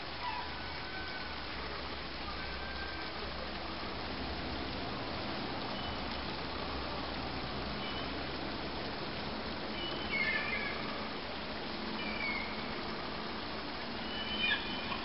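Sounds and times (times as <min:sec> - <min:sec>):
steady background hiss: 0:00.0 - 0:15.0
gulls calling: 0:09.7 - 0:11.1, 0:12.0 - 0:12.8, 0:13.9 - 0:15.0.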